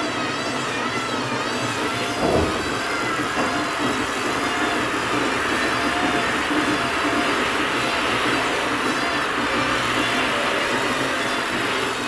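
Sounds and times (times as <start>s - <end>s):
knock: 2.2s - 4.0s.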